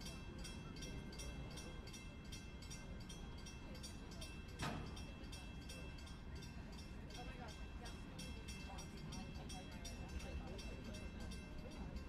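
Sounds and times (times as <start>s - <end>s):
crossing bell ringing: 0.0s - 12.0s
loud train clank: 4.2s - 6.2s.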